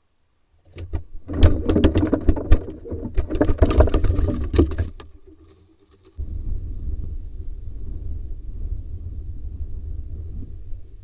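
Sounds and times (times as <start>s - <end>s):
low rumble: 6.2s - 11.0s.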